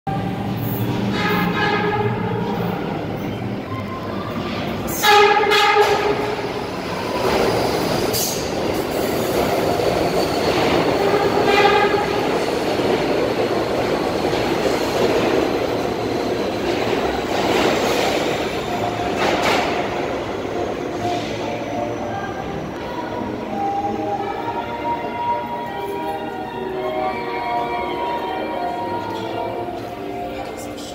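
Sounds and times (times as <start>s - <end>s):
train wheels rumbling on rails: 0.1s - 22.8s
subway train horn: 0.1s - 30.9s.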